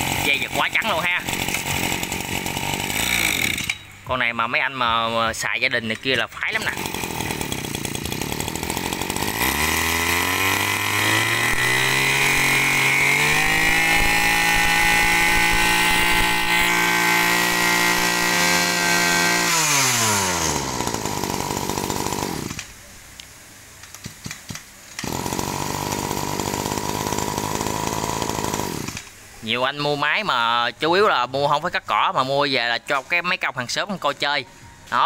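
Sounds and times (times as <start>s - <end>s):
brush cutter engine revving: 0.0s - 4.8s, 5.4s - 22.7s, 25.0s - 29.1s.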